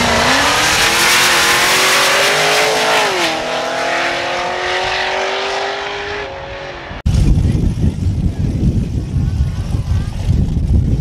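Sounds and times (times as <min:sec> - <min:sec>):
drag cars accelerating: 0:00.0 - 0:07.0.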